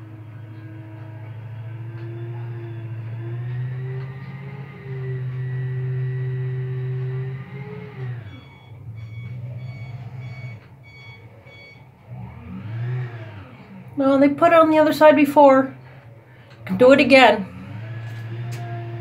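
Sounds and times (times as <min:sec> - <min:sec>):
reversing alarm beeping: 0:00.0 - 0:13.7
truck engine whining: 0:00.0 - 0:19.0.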